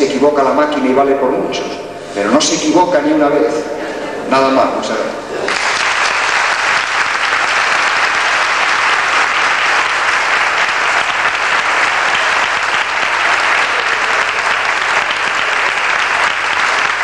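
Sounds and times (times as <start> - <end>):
audience applauding: 5.4 - 17.0.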